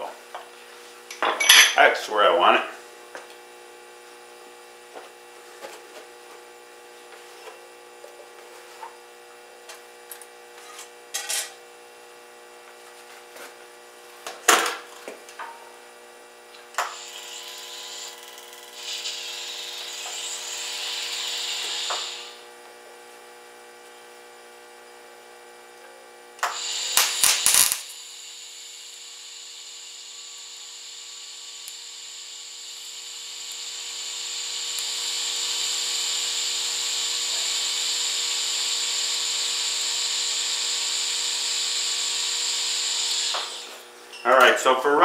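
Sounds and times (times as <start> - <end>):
welding arc hissing: 16.8 - 22.5, 26.4 - 43.9.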